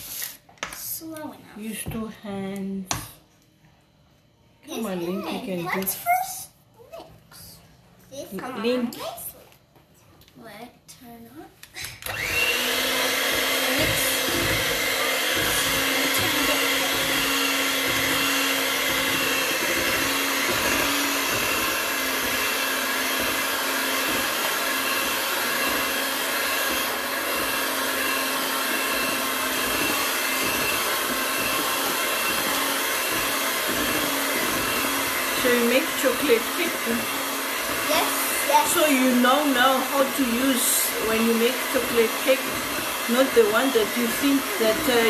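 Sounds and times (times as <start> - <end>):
electric hand mixer whisking batter: 4.7 - 6.4, 11.8 - 45.0.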